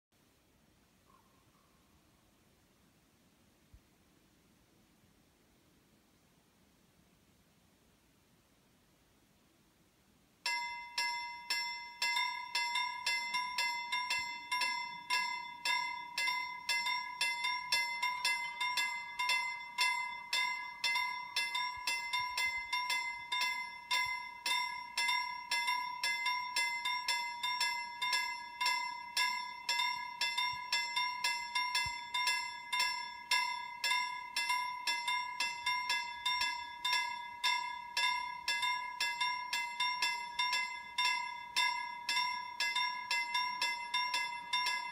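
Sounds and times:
level-crossing warning bell: 0:10.4 - 0:44.9.

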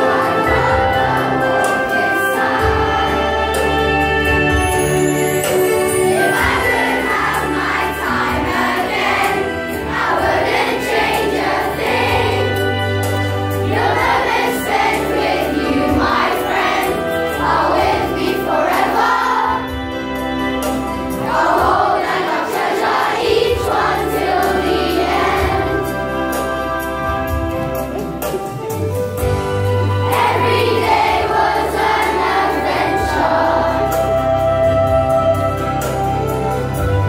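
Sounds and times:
children singing in chorus: 0:00.0 - 0:04.4, 0:06.0 - 0:13.0, 0:13.6 - 0:19.8, 0:21.2 - 0:26.3, 0:30.0 - 0:34.2
instrumental accompaniment: 0:00.0 - 0:37.0.

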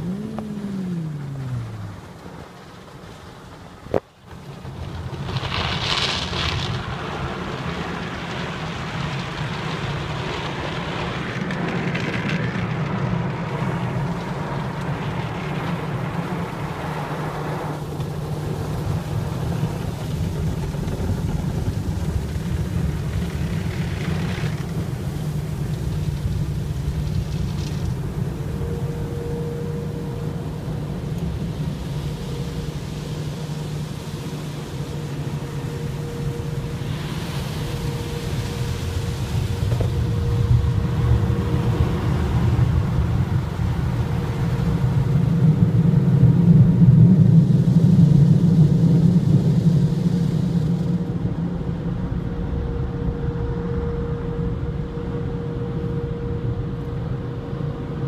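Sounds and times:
steady low hum: 0:00.0 - 0:04.0, 0:12.8 - 0:58.0
water spraying on windshield: 0:00.0 - 0:51.0
faint steady tone: 0:24.8 - 0:51.2.

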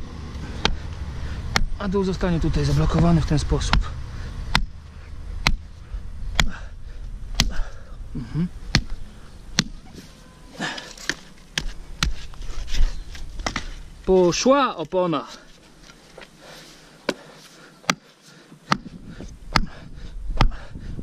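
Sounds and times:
hammer striking wood: 0:08.7 - 0:09.0, 0:09.6 - 0:09.8.

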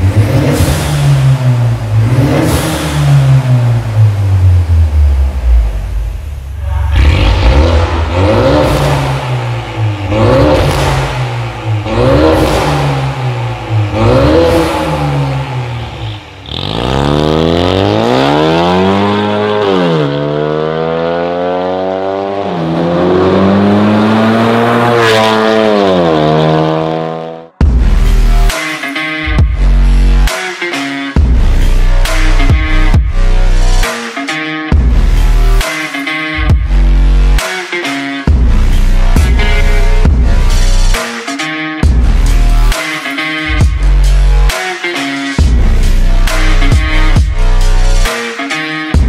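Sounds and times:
car accelerating hard: 0:00.0 - 0:05.8, 0:06.9 - 0:27.5
car engine revving: 0:00.0 - 0:28.6, 0:38.3 - 0:41.0, 0:45.4 - 0:48.1
electronic music with heavy bass: 0:00.0 - 0:49.0.

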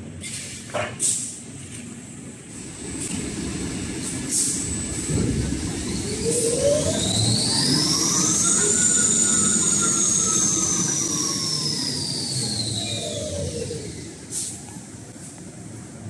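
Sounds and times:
mechanical rumble: 0:02.3 - 0:16.0
motor whine: 0:05.1 - 0:14.2.

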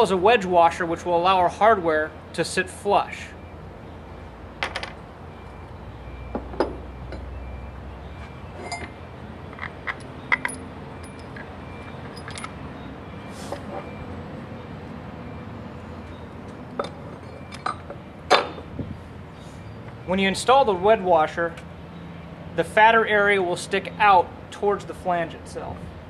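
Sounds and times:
metal bolts clinking: 0:04.6 - 0:05.0, 0:08.5 - 0:12.6, 0:16.8 - 0:18.6.

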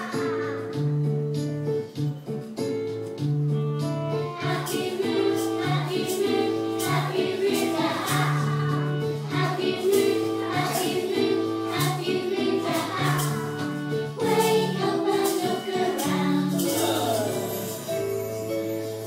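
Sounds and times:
children singing: 0:00.0 - 0:00.8, 0:04.4 - 0:18.1
instrumental accompaniment with beat: 0:00.0 - 0:19.0.

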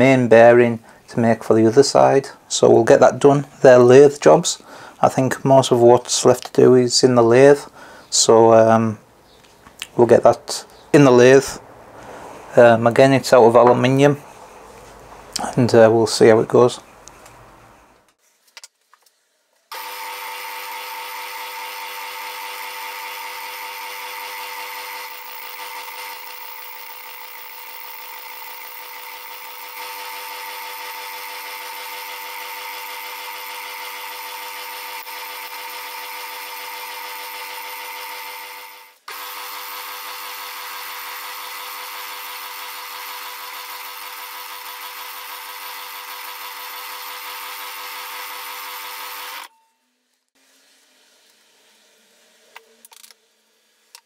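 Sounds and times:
metal lathe whining: 0:19.8 - 0:49.5.

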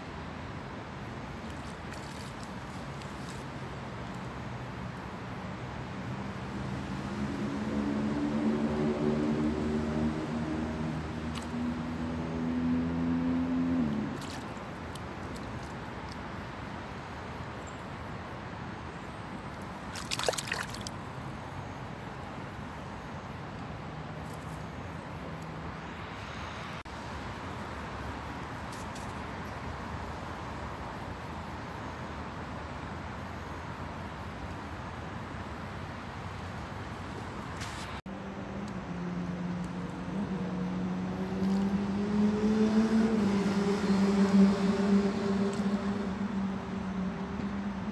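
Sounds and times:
outdoor noise: 0:00.0 - 0:47.9
low engine-like hum: 0:06.0 - 0:15.4, 0:38.0 - 0:47.9
fish splashing at water surface: 0:19.8 - 0:21.0.

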